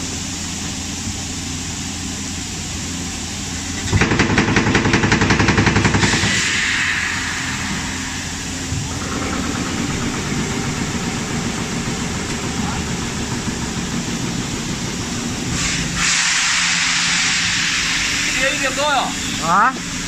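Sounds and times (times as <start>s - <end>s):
steady machine hum: 0.0s - 20.0s
moulding machine rapid knocks: 3.8s - 6.4s
compressed air hiss: 5.8s - 9.1s, 14.4s - 20.0s.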